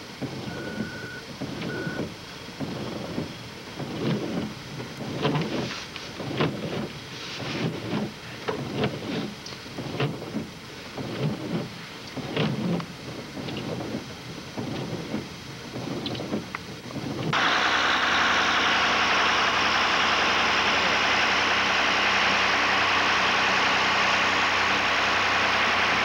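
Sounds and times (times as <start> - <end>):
short high beeps: 0.5 - 2.0.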